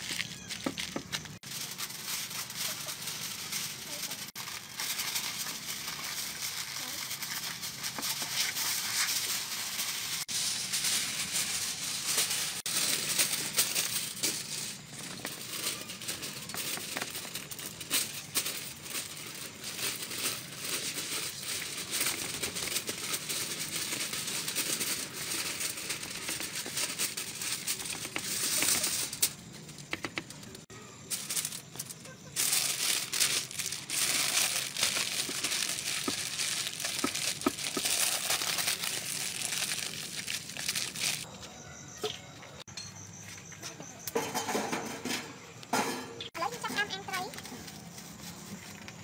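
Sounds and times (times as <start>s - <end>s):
plastic gloves rustling: 0.0s - 29.6s, 30.5s - 41.3s
aluminium foil crinkling: 0.0s - 41.3s, 46.3s - 49.0s.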